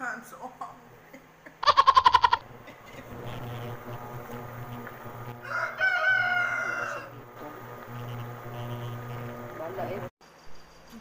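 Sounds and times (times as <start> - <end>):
low steady hum: 2.4 - 10.1
rooster crowing: 5.3 - 7.3.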